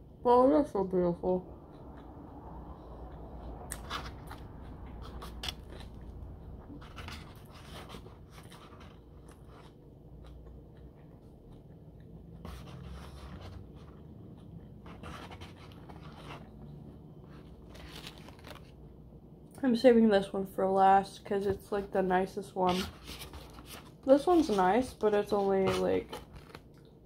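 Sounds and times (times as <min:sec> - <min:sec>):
low steady hum: 0:00.0 - 0:27.0.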